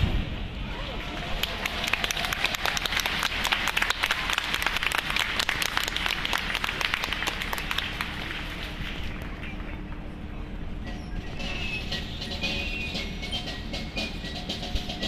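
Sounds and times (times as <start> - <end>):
audience applauding: 1.0 - 9.8.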